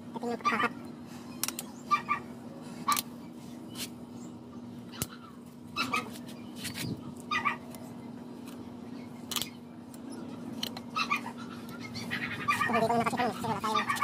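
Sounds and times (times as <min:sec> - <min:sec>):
animal calls: 0:10.9 - 0:14.0.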